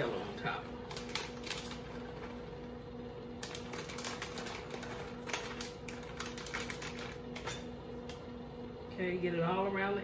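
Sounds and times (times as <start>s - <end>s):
plastic bag crinkling: 3.4s - 7.6s.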